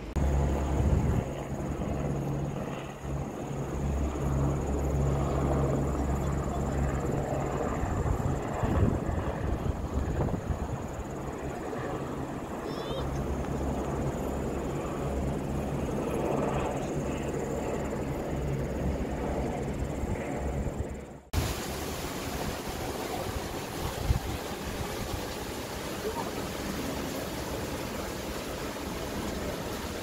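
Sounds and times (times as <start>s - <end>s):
waterfall rushing: 21.4s - 30.0s.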